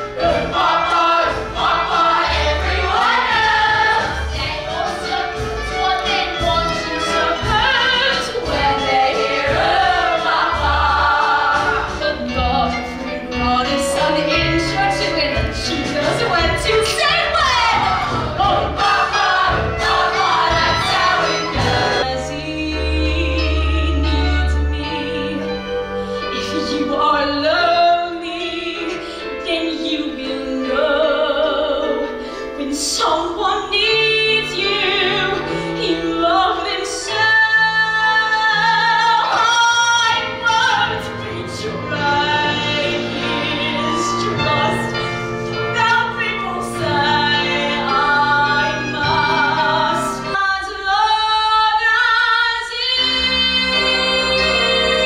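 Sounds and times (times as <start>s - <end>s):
instrumental accompaniment: 0.0s - 55.0s.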